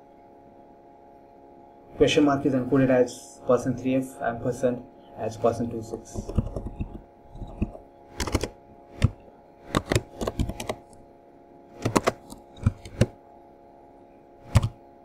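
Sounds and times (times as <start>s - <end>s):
keyboard typing: 6.1s - 11.0s, 11.8s - 13.2s, 14.4s - 14.8s.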